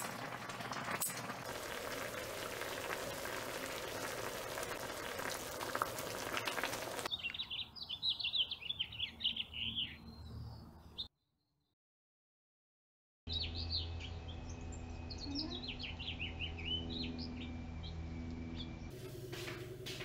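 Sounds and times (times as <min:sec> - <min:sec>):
hot pot bubbling and crackling: 0:00.0 - 0:07.1
small bird chirping: 0:07.1 - 0:11.1, 0:13.3 - 0:18.9.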